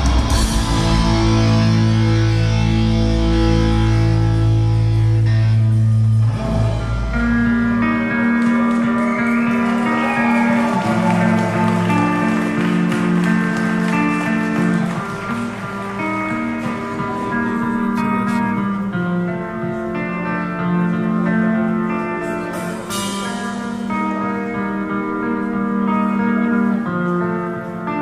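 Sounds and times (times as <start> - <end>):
guitar-led band playing: 0.0 - 28.0.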